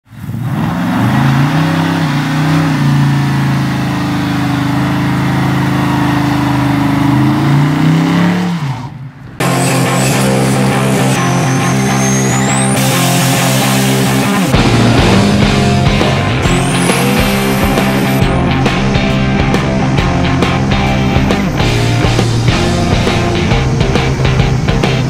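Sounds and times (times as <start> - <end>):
engine revving hard: 0.1 - 25.0
guitar rock music: 9.4 - 25.0.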